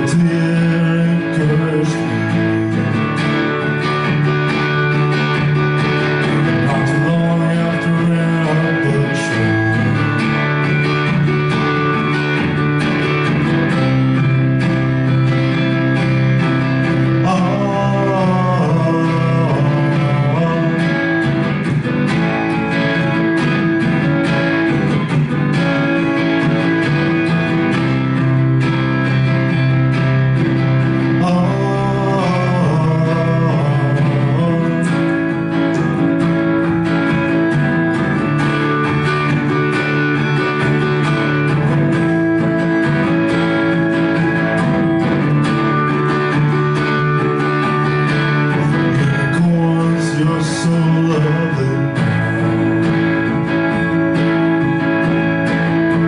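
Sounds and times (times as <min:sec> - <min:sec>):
person singing: 0:00.0 - 0:03.0, 0:06.3 - 0:10.2, 0:16.8 - 0:23.4, 0:31.0 - 0:36.1, 0:45.8 - 0:55.0
strummed guitar: 0:00.0 - 0:56.0.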